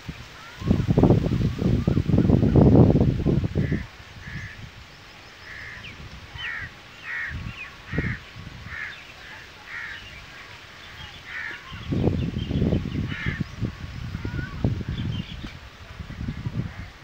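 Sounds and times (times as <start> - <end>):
wind rumbling on microphone: 0.0 - 17.0
crows cawing: 3.6 - 4.7, 5.4 - 10.2, 11.1 - 11.8, 13.0 - 13.5.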